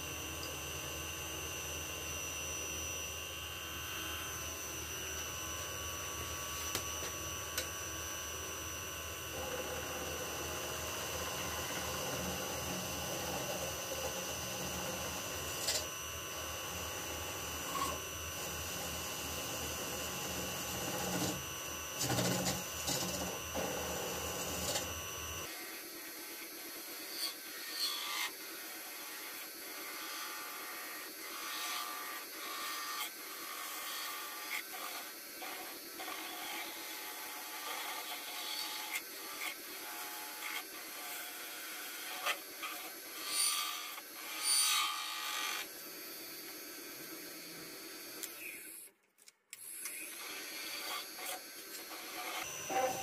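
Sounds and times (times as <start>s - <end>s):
tool scraping spinning metal: 9.3s - 15.9s, 17.3s - 25.0s, 50.3s - 53.0s.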